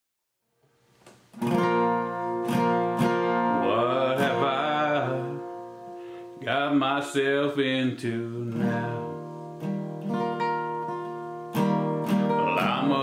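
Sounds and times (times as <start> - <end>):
acoustic guitar strumming: 1.3 - 13.0
man singing: 3.3 - 5.7, 6.4 - 9.4, 12.3 - 13.0.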